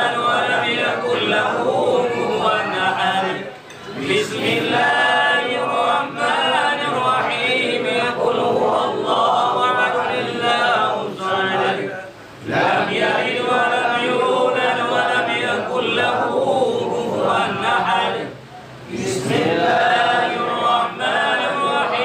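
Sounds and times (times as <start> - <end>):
men chanting prayers in unison: 0.0 - 22.0.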